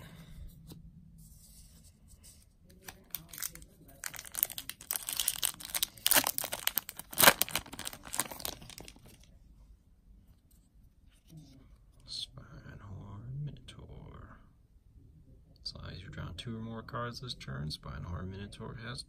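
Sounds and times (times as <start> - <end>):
foil wrapper crinkling and tearing: 2.8 - 9.3.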